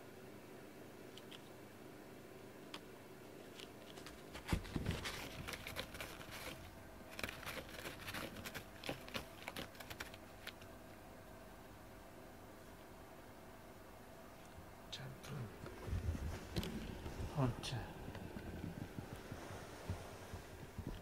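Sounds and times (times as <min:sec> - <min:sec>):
cat scratching cardboard: 0:03.5 - 0:10.7.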